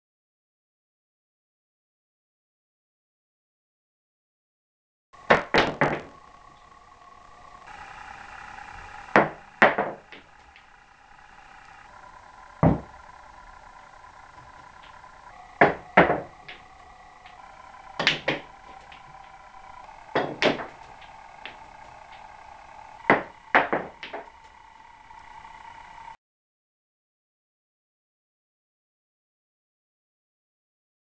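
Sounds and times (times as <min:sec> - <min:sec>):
faint steady hum: 0:05.2 - 0:26.2
cue tip striking ball: 0:05.3 - 0:06.6, 0:09.1 - 0:10.7, 0:12.6 - 0:13.0, 0:14.4 - 0:17.4, 0:18.0 - 0:19.3, 0:20.1 - 0:22.2, 0:23.1 - 0:24.3
snooker balls clacking: 0:05.3 - 0:06.6, 0:09.1 - 0:10.7, 0:15.6 - 0:17.4, 0:18.0 - 0:19.1, 0:20.1 - 0:22.2, 0:23.1 - 0:24.3.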